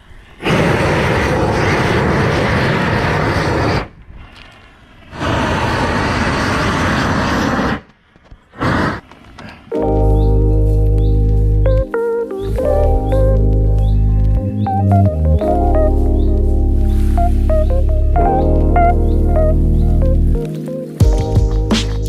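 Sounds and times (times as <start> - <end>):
propane torch flame rushing: 0.1 - 9.4.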